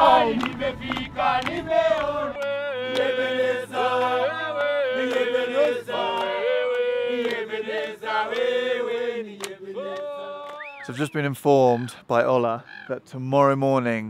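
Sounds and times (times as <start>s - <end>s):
group singing in chorus: 0.0s - 10.9s
hands clapping in time: 0.1s - 3.3s, 4.5s - 8.6s, 9.4s - 11.0s.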